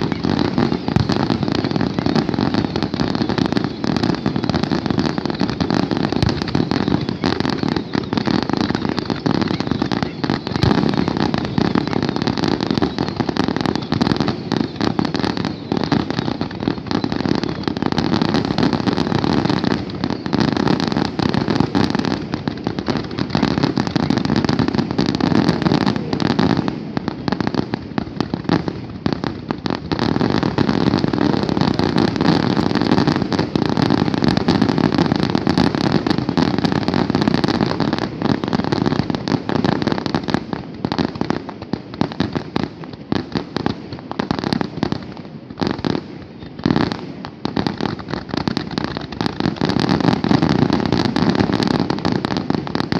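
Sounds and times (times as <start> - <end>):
fireworks bangs and crackling: 0.0 - 52.9.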